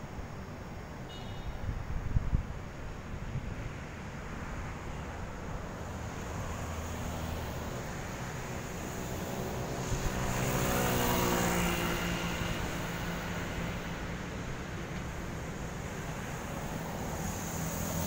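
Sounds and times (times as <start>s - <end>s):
street traffic hum: 0.0s - 18.0s
passing vehicle engine: 5.7s - 18.0s.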